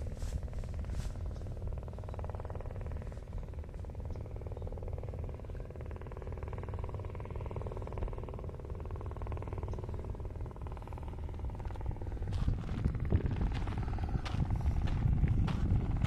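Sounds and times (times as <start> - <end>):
hum: 0.0 - 16.0
low rumble: 0.0 - 16.0
footsteps on gravel: 11.7 - 16.0.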